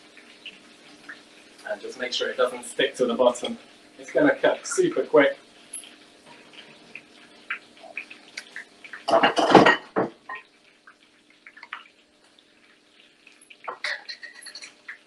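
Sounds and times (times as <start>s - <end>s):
small clinks: 5.7s - 6.0s, 13.3s - 14.8s
bowls and utensils clattering: 9.1s - 10.4s, 13.4s - 14.9s.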